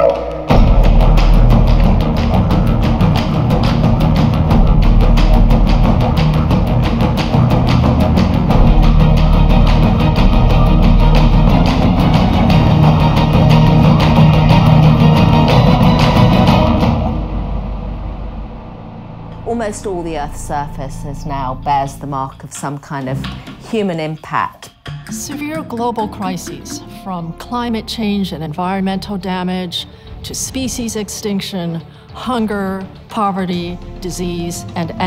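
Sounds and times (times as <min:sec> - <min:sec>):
soundtrack music with drum beat: 0:00.0 - 0:19.4, 0:24.7 - 0:27.5.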